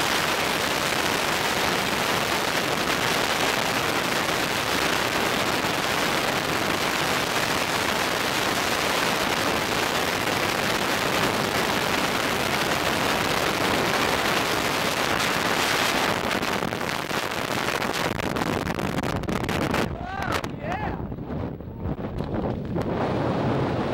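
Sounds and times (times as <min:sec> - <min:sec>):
wind roaring over microphone: 0:00.0 - 0:23.9.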